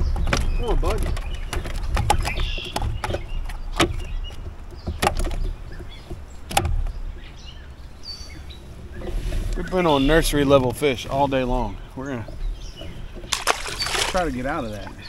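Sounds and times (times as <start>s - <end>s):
sharp knocks and clicks: 0.0s - 7.3s.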